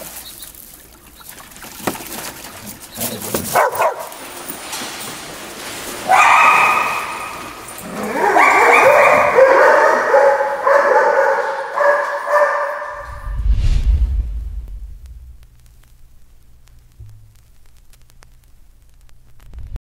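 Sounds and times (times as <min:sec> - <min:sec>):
low rumble: 0:12.9 - 0:19.6.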